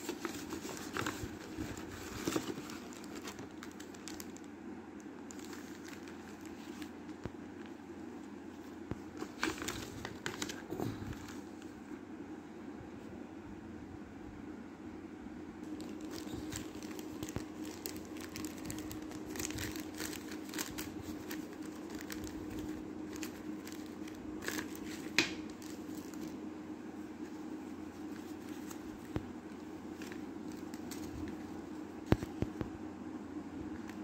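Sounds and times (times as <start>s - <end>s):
plastic bag crinkling: 0.0s - 7.2s, 15.6s - 26.5s, 27.2s - 32.4s
steady low hum: 0.0s - 34.0s.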